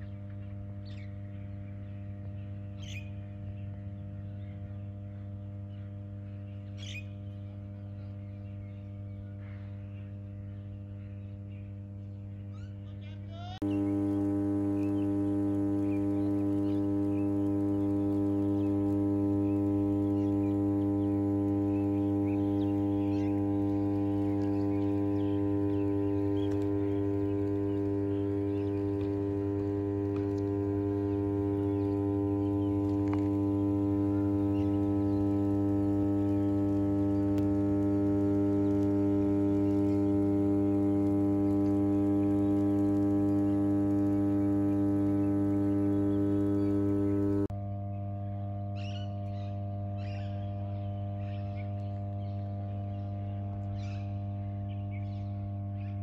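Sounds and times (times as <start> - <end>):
power transformers humming: 13.4 - 56.0.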